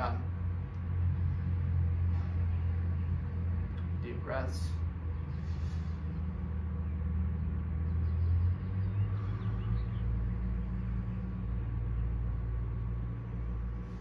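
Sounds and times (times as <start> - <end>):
motor rumbling: 0.0 - 14.0.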